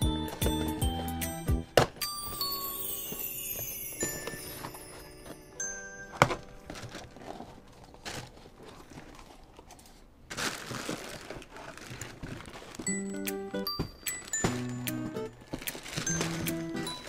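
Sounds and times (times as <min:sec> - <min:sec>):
plastic wrapping crinkling: 0:00.0 - 0:17.0
cardboard flaps rustling: 0:06.2 - 0:17.0.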